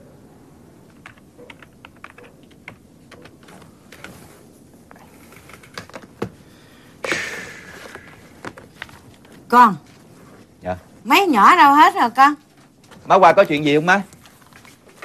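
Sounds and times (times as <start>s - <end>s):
keyboard typing: 0.9s - 3.6s
burst of hissing noise: 7.0s - 8.4s.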